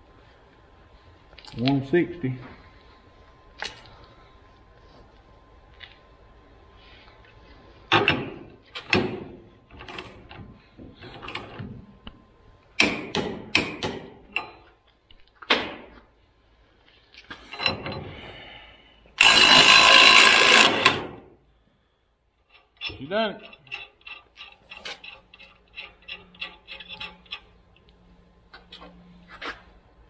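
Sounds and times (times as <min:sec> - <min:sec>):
cordless ratchet running: 0:19.2 - 0:21.0
hand ratchet clicking: 0:19.2 - 0:21.1, 0:22.5 - 0:27.5
metal clanks: 0:22.5 - 0:27.6.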